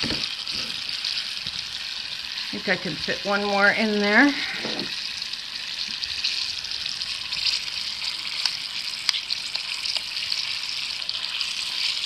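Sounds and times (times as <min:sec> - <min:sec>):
hot oil sizzling: 0:00.0 - 0:12.0.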